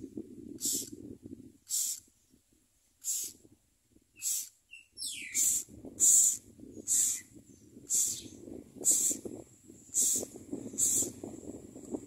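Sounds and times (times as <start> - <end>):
nestlings begging rasps: 1.7 - 2.0, 3.0 - 3.4, 4.2 - 9.2, 9.9 - 11.2.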